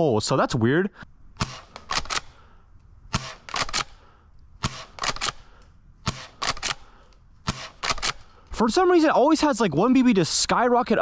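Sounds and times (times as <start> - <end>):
airsoft shotgun shots: 4.6 - 5.4, 6.0 - 6.8, 7.4 - 8.2.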